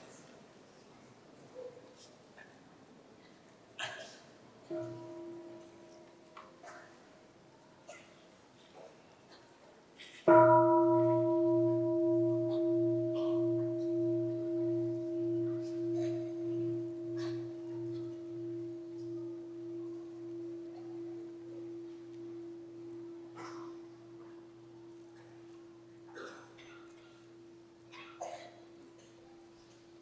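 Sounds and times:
bowl bell ringing: 10.3 - 24.0.

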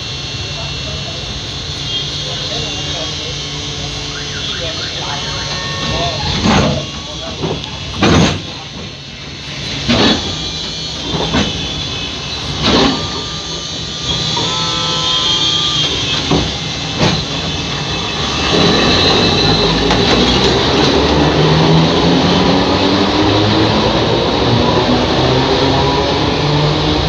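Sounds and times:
thin whine: 0.0 - 21.0
tram rumbling: 0.0 - 27.0
tram sharp knocks: 4.6 - 21.0.

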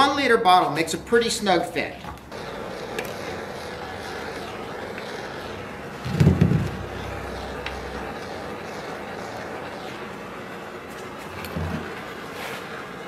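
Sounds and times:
propane torch hissing: 2.2 - 13.0
torch flame catching whump: 6.0 - 6.8.

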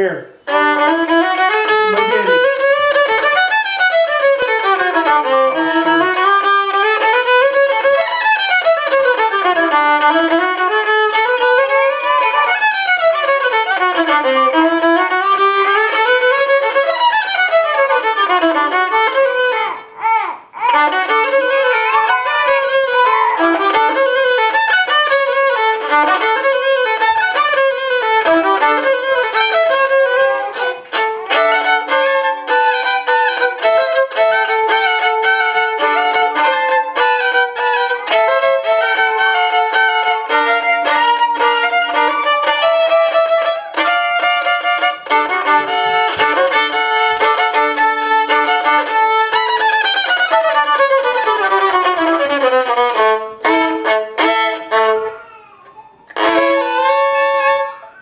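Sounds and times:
violin playing scales: 0.0 - 58.0.

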